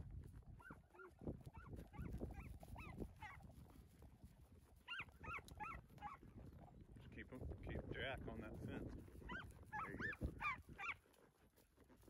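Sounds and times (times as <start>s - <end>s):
dog yipping: 0.6s - 3.4s, 4.8s - 6.2s, 9.2s - 11.0s.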